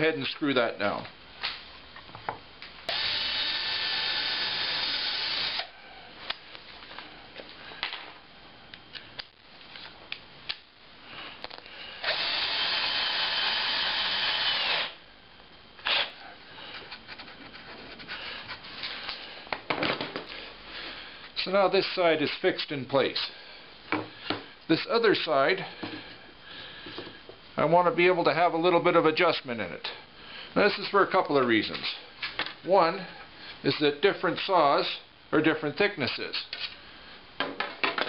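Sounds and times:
cordless drill driving screws: 2.9s - 5.7s, 12.0s - 15.0s, 15.8s - 16.1s.

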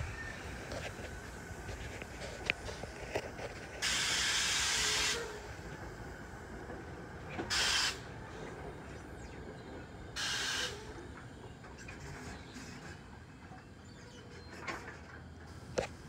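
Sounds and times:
compressed air hissing from train: 0.0s - 6.5s, 7.4s - 8.4s, 10.2s - 11.1s.

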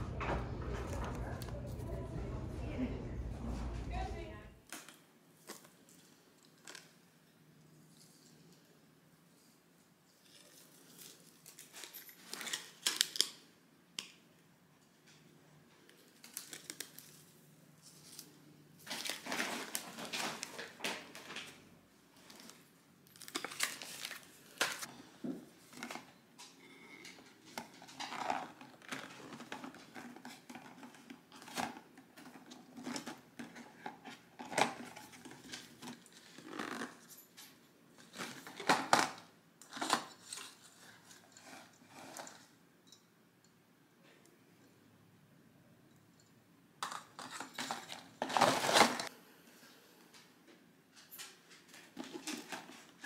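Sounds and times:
packaging rustling and crinkling: 16.0s - 21.6s, 22.2s - 24.9s, 47.2s - 49.1s.

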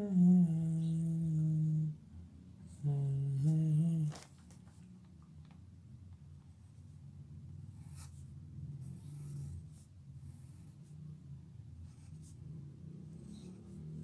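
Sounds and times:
steady low hum: 0.0s - 14.0s
pencil scratching on paper: 7.7s - 11.0s, 11.8s - 12.4s, 13.1s - 14.0s.

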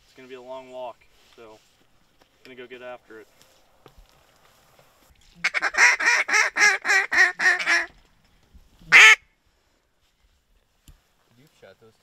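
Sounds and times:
duck quacking: 5.4s - 7.9s, 8.9s - 9.2s.

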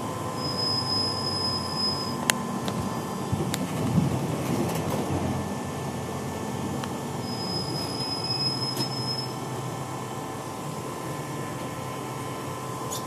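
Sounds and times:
thin high squeal: 0.4s - 2.2s, 7.2s - 9.4s.

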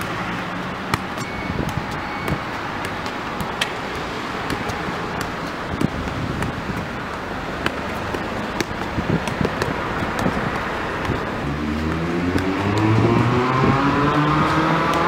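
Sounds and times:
football being juggled: 0.0s - 15.0s
street noise: 0.0s - 15.0s
vehicle engine accelerating: 8.4s - 15.0s.

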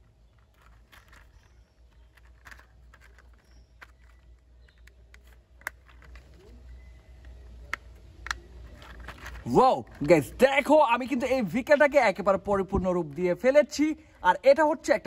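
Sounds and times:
plastic toy parts clicking: 0.0s - 10.2s.

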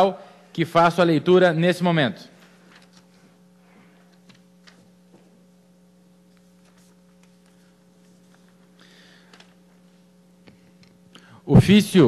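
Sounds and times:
low electrical hum: 0.0s - 12.0s
paper rustling: 2.4s - 3.9s, 6.3s - 9.6s.

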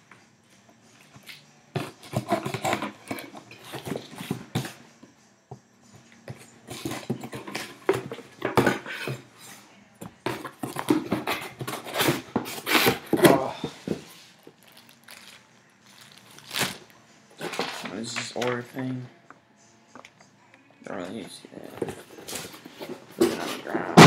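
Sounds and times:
cardboard scraping and ripping: 10.6s - 16.9s.

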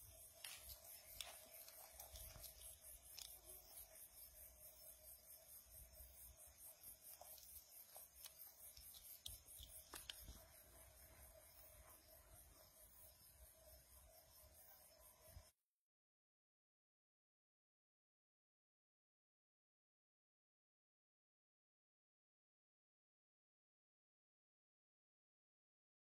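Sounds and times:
faint steady hum: 0.0s - 15.5s.

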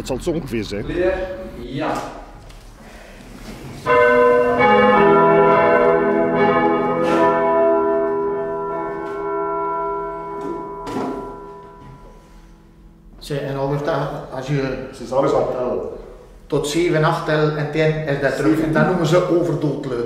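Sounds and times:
church bell ringing: 3.8s - 16.3s.

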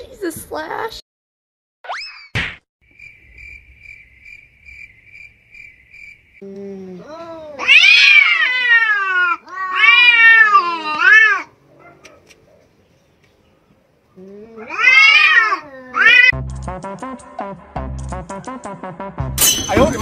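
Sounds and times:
cat growling: 6.4s - 12.0s, 14.2s - 16.4s
cats yowling: 7.0s - 12.2s, 14.4s - 16.4s.

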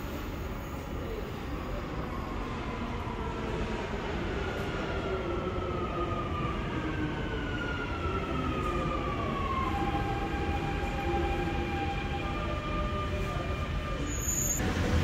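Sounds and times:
train braking: 9.4s - 15.0s
train rumble: 10.8s - 15.0s.

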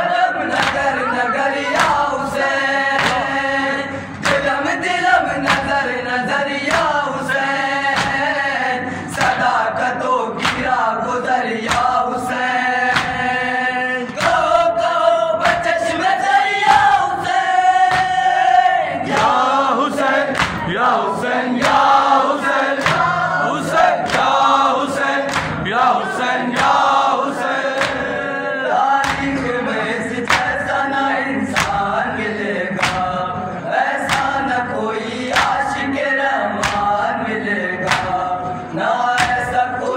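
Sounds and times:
male voices chanting through a pa: 0.0s - 39.9s
chest-beating slaps: 0.5s - 0.9s, 2.9s - 3.4s, 4.2s - 4.6s, 5.4s - 5.8s, 6.6s - 8.4s, 10.4s - 10.8s, 11.6s - 12.0s, 12.9s - 13.3s, 14.0s - 14.5s, 17.9s - 18.2s, 20.2s - 20.8s, 21.6s - 23.2s, 24.0s - 25.9s, 27.7s - 28.2s, 29.0s - 29.5s, 30.2s - 30.7s, 31.5s - 31.9s, 32.8s - 33.2s, 34.0s - 34.4s, 35.3s - 35.8s, 36.6s - 37.0s, 37.8s - 38.3s, 39.2s - 39.5s.

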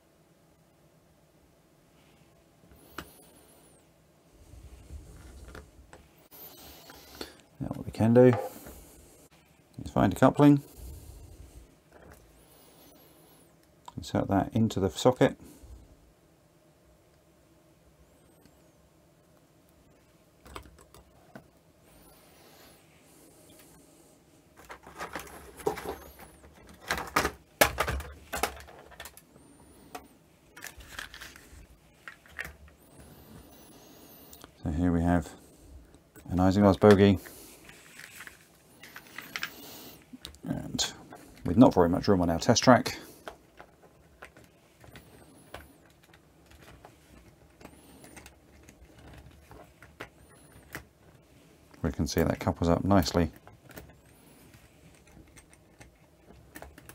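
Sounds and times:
plastic parts clicking and knocking: 20.4s - 21.5s, 24.6s - 29.2s, 37.7s - 39.6s, 53.0s - 56.9s.

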